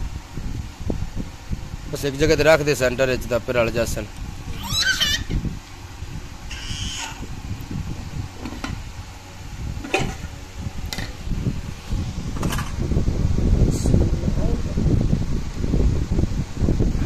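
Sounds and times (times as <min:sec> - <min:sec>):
low handling rumble: 0:00.0 - 0:17.0
short high-pitched cry: 0:04.6 - 0:05.3, 0:06.5 - 0:07.3.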